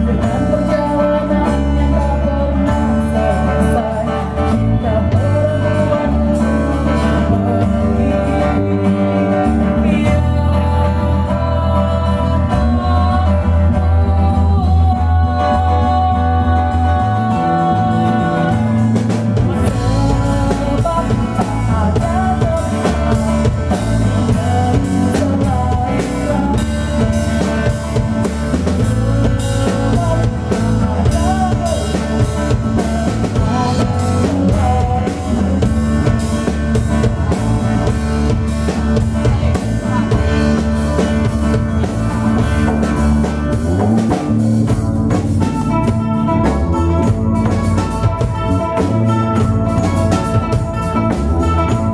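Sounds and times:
woman singing: 0:00.0 - 0:36.6, 0:37.8 - 0:41.6
hand-played frame drum: 0:00.0 - 0:51.9
live band playing: 0:00.0 - 0:51.9.

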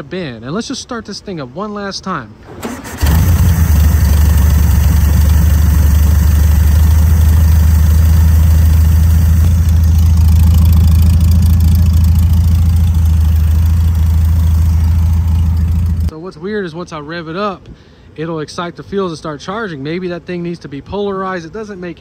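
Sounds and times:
car engine idling: 0:02.7 - 0:16.1.

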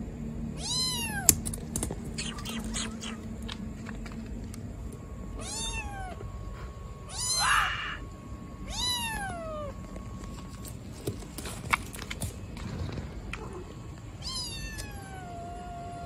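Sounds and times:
kitten meowing loudly: 0:00.6 - 0:01.4, 0:05.4 - 0:06.2, 0:07.1 - 0:08.0, 0:14.2 - 0:16.0.

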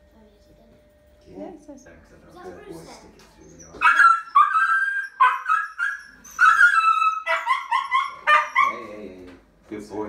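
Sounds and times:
puppy yelping and crying: 0:03.4 - 0:09.0.

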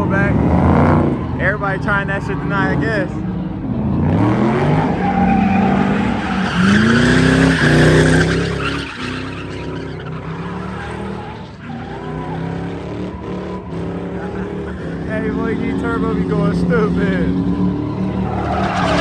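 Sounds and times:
car engine revving: 0:00.0 - 0:19.0
tyres screeching: 0:00.0 - 0:19.0.

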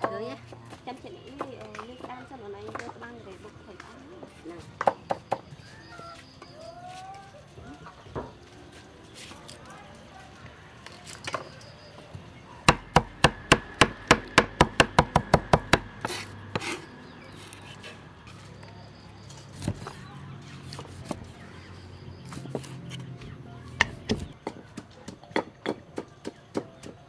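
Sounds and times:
pestle pounding in mortar: 0:12.6 - 0:16.8, 0:23.8 - 0:27.0
cleaver chopping on wooden board: 0:12.7 - 0:16.9.

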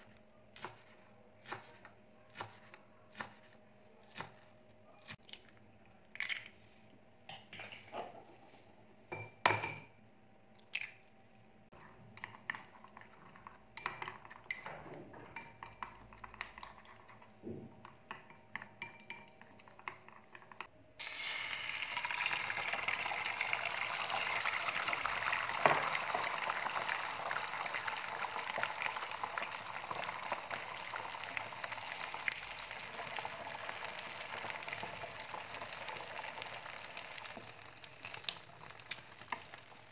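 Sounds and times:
chopsticks beating eggs in a bowl: 0:11.8 - 0:20.7
egg sizzling in a frying pan: 0:21.0 - 0:39.9.

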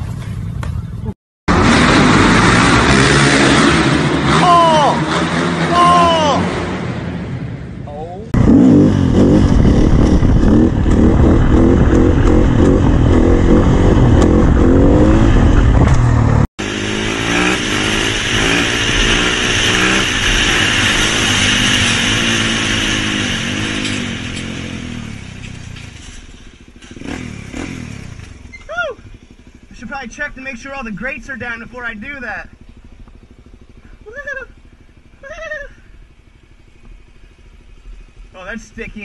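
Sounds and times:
motorcycle engine revving: 0:00.0 - 0:29.9, 0:30.6 - 0:39.0
dirt bike engine revving: 0:01.5 - 0:07.3, 0:08.3 - 0:28.6.

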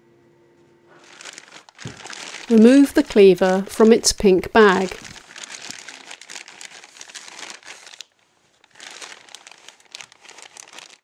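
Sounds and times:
plastic bag crinkling: 0:00.9 - 0:11.0.

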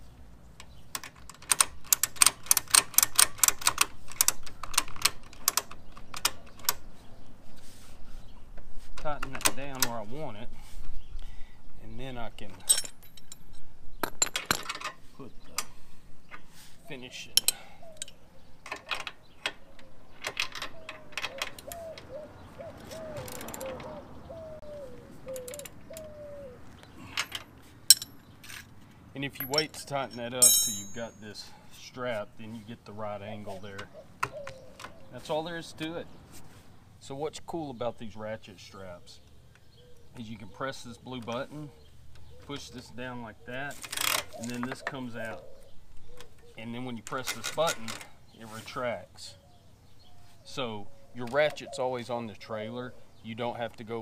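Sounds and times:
wrenches clinking on metal: 0:01.0 - 0:06.8, 0:12.6 - 0:15.7, 0:17.4 - 0:21.8, 0:27.1 - 0:31.4, 0:43.7 - 0:45.2, 0:47.0 - 0:48.1.

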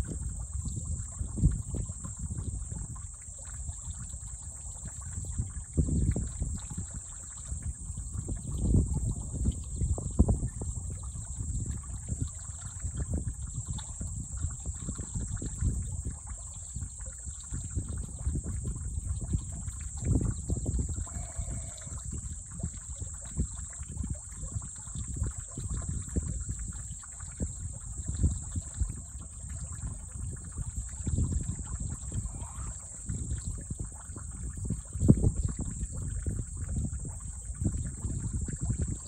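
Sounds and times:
insect drone: 0:00.0 - 0:39.0
wind rumble on microphone: 0:00.0 - 0:39.0
shallow water splashing: 0:18.8 - 0:38.2.

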